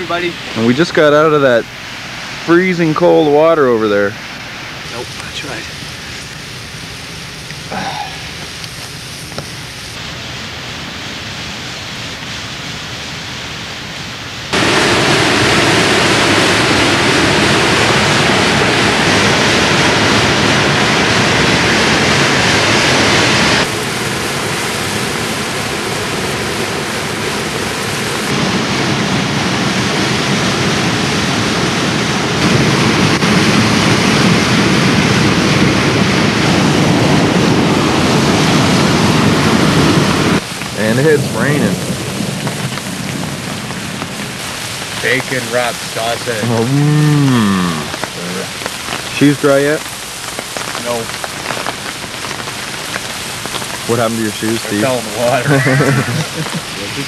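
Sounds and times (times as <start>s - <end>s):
rain: 0.0s - 57.0s
fast river water rushing: 14.5s - 24.1s, 53.9s - 57.0s.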